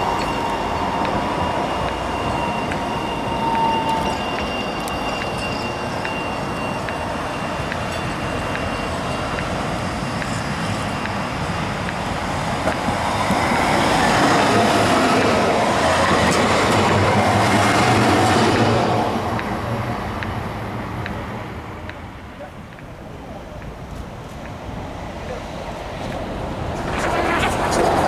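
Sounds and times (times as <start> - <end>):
tram rolling rumble: 0.0 - 28.0.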